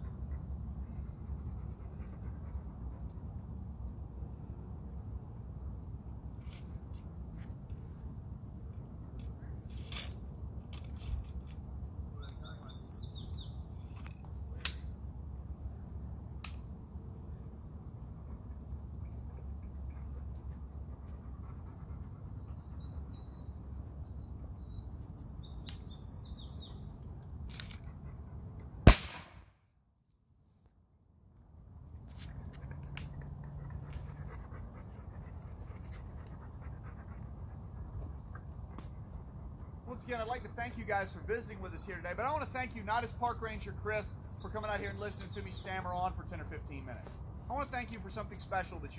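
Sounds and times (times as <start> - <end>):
birds chirping: 0.0 - 3.3, 9.4 - 16.0, 16.6 - 28.0, 31.6 - 48.9
loud rifle shot: 28.9 - 29.6.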